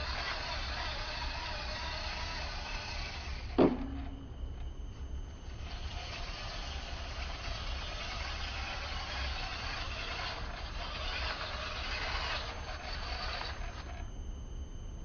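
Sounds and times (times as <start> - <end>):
toy truck motor whirring: 0.0 - 4.1, 5.4 - 14.1
sharp knock: 3.6 - 4.2.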